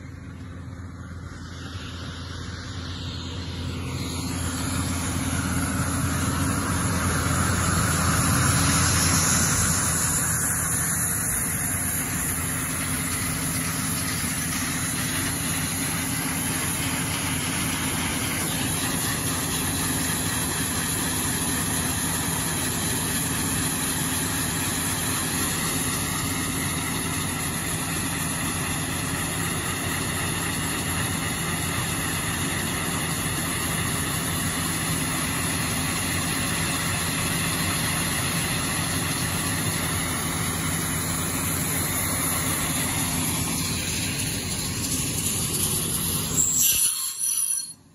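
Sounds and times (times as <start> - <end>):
excavator engine and hydraulics: 0.0 - 47.9
disc saw grinding through rock: 42.7 - 47.8.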